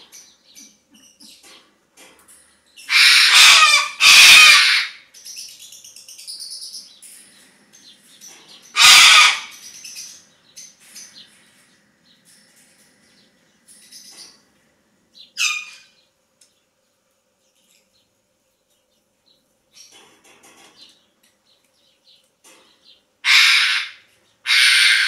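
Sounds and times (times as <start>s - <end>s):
cockatoo harsh screeches: 2.9s - 5.0s, 8.8s - 9.6s, 23.2s - 25.0s.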